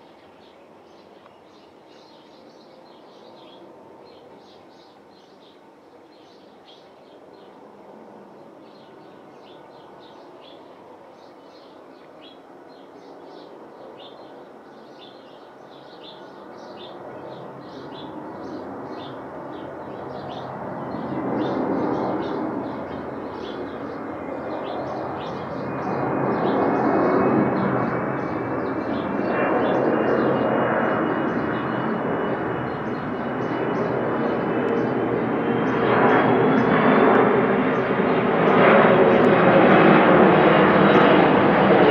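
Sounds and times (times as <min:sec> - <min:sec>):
high jet engine whine: 0:00.0 - 0:41.9
jet airliner rumble overhead: 0:00.0 - 0:41.9
small birds chirping: 0:08.6 - 0:39.4.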